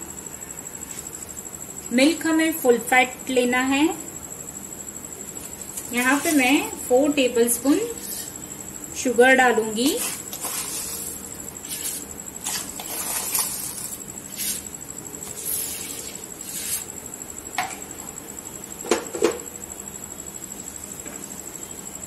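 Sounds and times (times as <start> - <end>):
spoon scraping sugar: 5.8 - 6.5, 7.8 - 8.4, 9.7 - 16.9.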